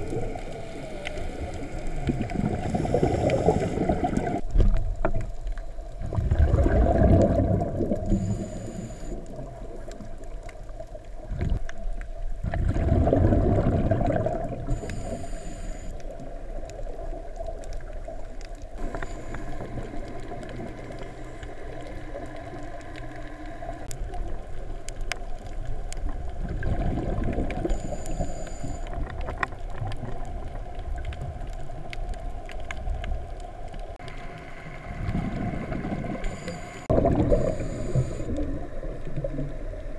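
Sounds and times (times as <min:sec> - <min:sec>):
low underwater rumble: 0:00.0 - 0:39.9
diver's exhaled bubbles rushing: 0:06.0 - 0:08.2, 0:12.4 - 0:14.7, 0:26.4 - 0:27.7, 0:36.9 - 0:37.7.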